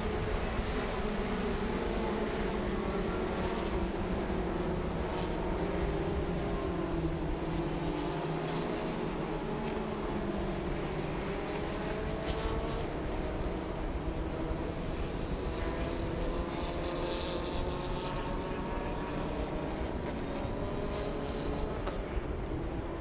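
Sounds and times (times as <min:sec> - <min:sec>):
race car engines: 0:00.0 - 0:23.0.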